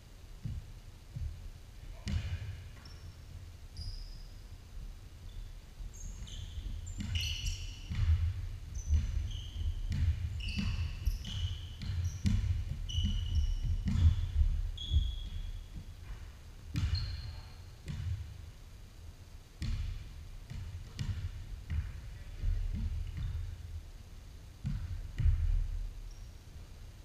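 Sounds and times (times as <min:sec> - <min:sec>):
running feet thuds: 0:00.4 - 0:01.6
basketball bouncing on wooden floor: 0:00.4 - 0:04.0, 0:05.4 - 0:18.4, 0:19.6 - 0:23.8, 0:24.6 - 0:26.2
sneaker squeaks: 0:01.9 - 0:04.5, 0:05.2 - 0:18.2, 0:24.8 - 0:26.5.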